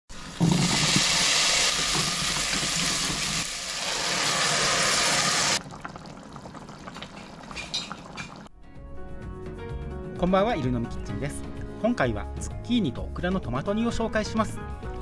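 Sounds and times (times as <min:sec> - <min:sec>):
vegetables sizzling in hot oil: 0:00.1 - 0:05.6
tomato stew simmering: 0:01.0 - 0:08.5.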